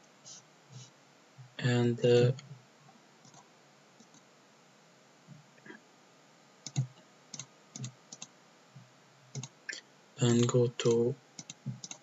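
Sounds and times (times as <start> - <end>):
computer mouse clicks: 3.2 - 3.4, 4.0 - 4.2, 6.6 - 8.3, 9.3 - 9.6, 10.3 - 12.0.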